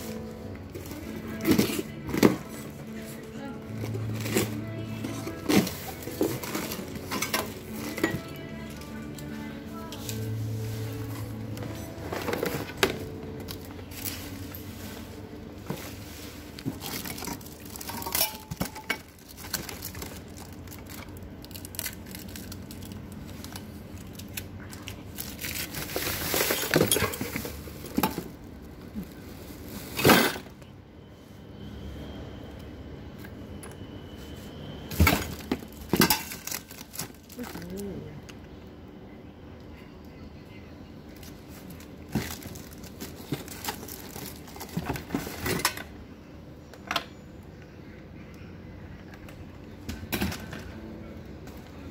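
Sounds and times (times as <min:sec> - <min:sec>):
plastic wrap crinkling: 0:00.0 - 0:30.1, 0:35.2 - 0:37.9, 0:41.1 - 0:45.4
cardboard rustling: 0:10.2 - 0:17.7.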